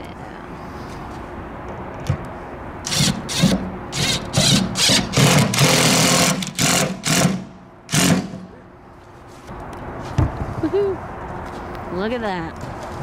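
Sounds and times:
cordless drill driving screws: 0:02.9 - 0:08.4.

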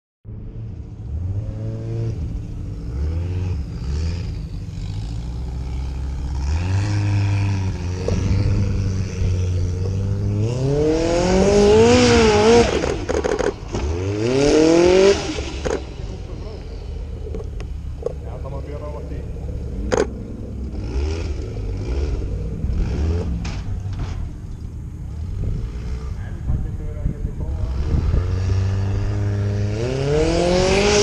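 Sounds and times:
racing car engine revving: 0:00.4 - 0:24.4, 0:25.0 - 0:31.0
sharp knocks and rattles: 0:12.8 - 0:14.0.

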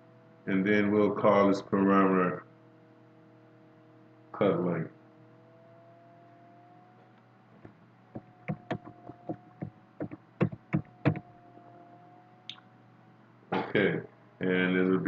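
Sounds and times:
faint steady hum: 0:00.0 - 0:15.0
keyboard key clicks: 0:08.4 - 0:11.2.

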